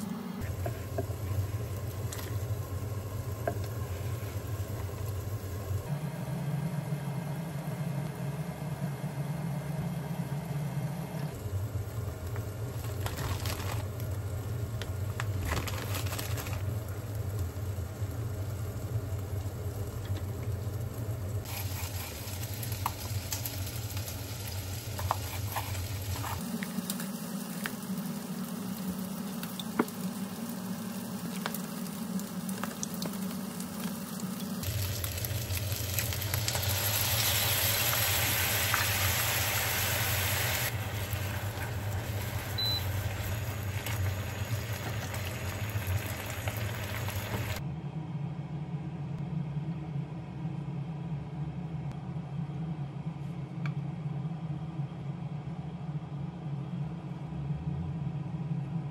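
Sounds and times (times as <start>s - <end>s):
low hum: 0.0s - 58.9s
pot simmering: 0.4s - 6.0s, 11.3s - 47.6s.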